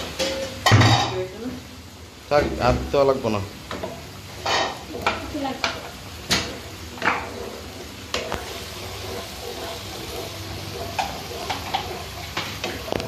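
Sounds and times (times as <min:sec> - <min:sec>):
sauce sizzling in a frying pan: 0:00.0 - 0:13.0
spatula tapping pan: 0:03.7 - 0:13.0
spatula scraping pan: 0:04.3 - 0:13.0.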